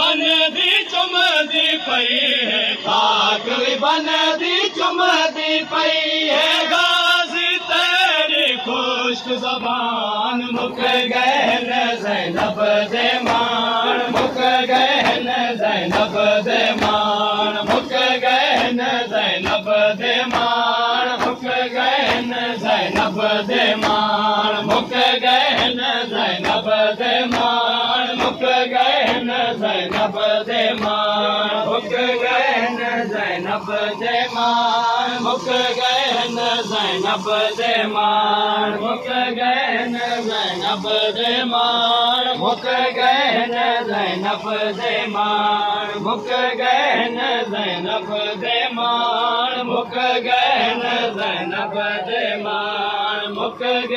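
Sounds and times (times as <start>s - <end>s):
men chanting a lament: 0.0s - 53.9s
palms slapping chests: 12.3s - 25.8s, 26.4s - 31.1s.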